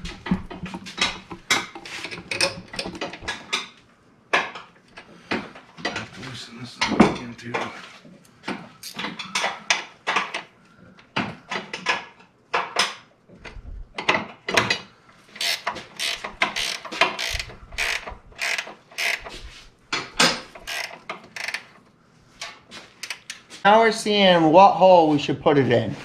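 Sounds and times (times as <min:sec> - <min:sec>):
ratcheting wrench clicking: 0:08.8 - 0:09.0, 0:15.4 - 0:19.4, 0:20.3 - 0:21.8, 0:23.0 - 0:23.4.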